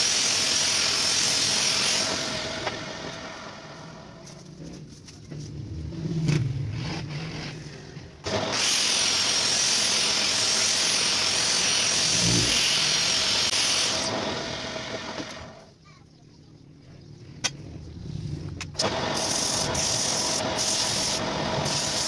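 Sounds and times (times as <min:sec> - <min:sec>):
lathe tool hissing on wood: 0:00.0 - 0:03.6, 0:08.3 - 0:15.5, 0:18.8 - 0:22.0.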